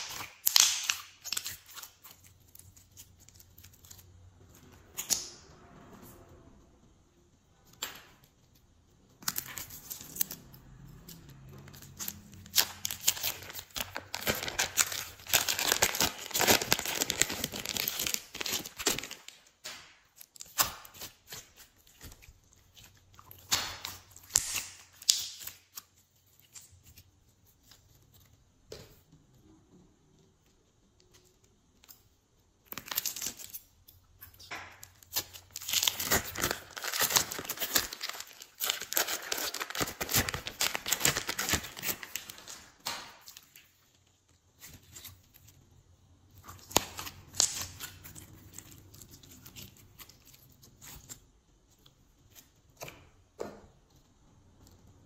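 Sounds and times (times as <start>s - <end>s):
slime crackling and popping: 0.0s - 4.1s, 8.5s - 27.0s, 32.6s - 43.9s, 46.3s - 53.0s.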